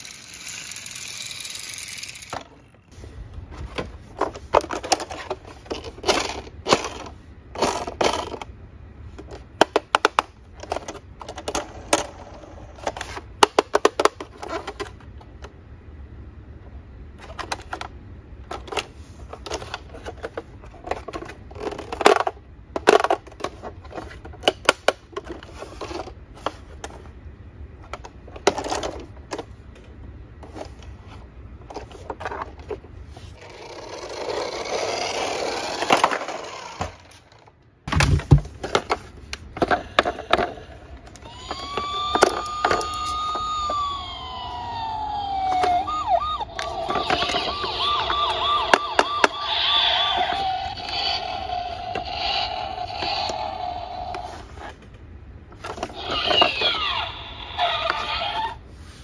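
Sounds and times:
plastic toys clicking and knocking: 0:00.0 - 0:02.8, 0:03.7 - 0:15.5, 0:17.2 - 0:27.0, 0:27.8 - 0:29.5, 0:33.4 - 0:54.9, 0:55.6 - 0:58.5
toy electronic siren wailing: 0:41.2 - 0:54.4, 0:55.8 - 0:58.6.

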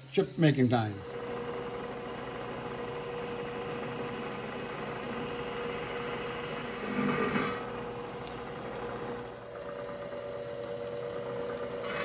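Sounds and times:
milling machine motor hum: 0:01.0 - 0:12.0
drill scraping into steel: 0:01.1 - 0:08.0, 0:11.8 - 0:12.0.

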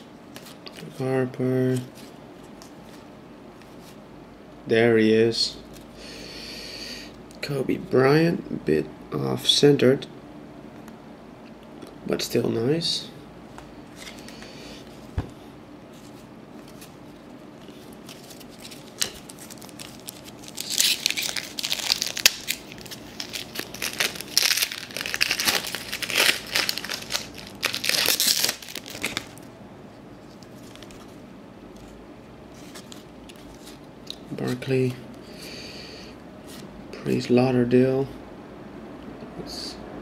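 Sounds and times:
foil wrapper crinkling: 0:17.6 - 0:29.5.

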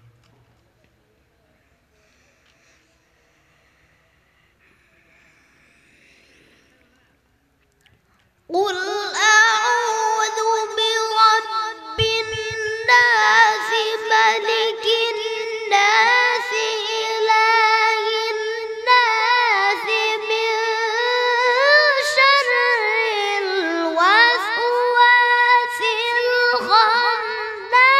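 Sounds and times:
boy reciting melodically: 0:08.5 - 0:27.9.

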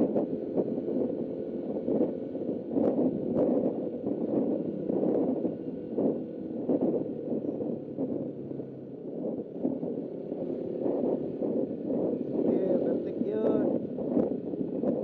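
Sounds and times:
motorcycle engine drone: 0:00.0 - 0:15.0
wind rushing on microphone: 0:00.0 - 0:15.0.

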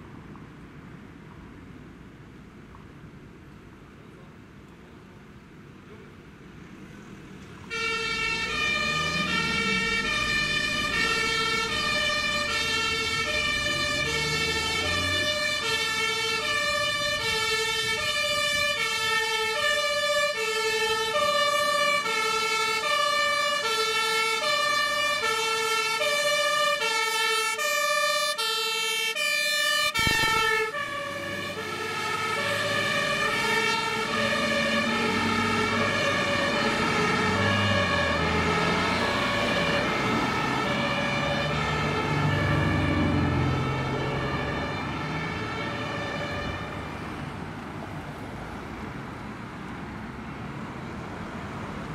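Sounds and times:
two-tone fire engine siren: 0:07.6 - 0:48.2.

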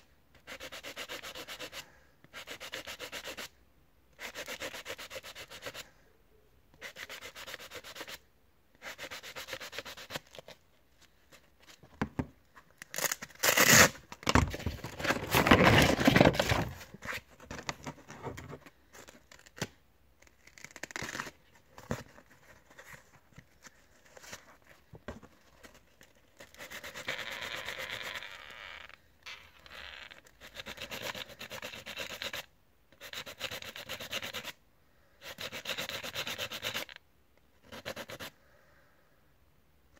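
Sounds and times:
sandpaper rubbing on plastic: 0:35.3 - 0:37.0.

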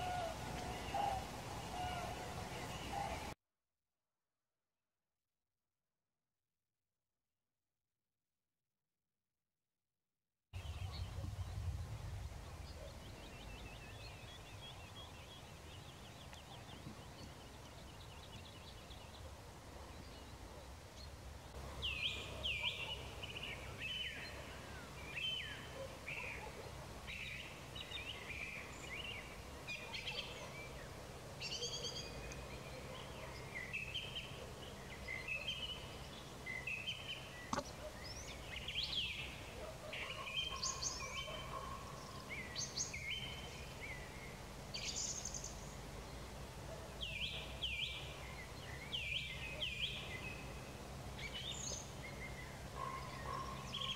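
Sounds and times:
birds chirping and singing: 0:00.0 - 0:03.4, 0:19.9 - 0:45.7, 0:46.7 - 0:53.9
low steady background rumble: 0:10.6 - 0:25.4.

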